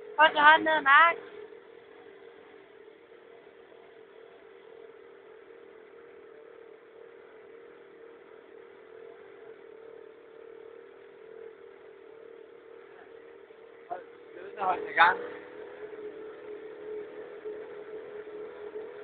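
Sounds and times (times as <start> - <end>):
scooter engine idling: 0.0 - 19.0.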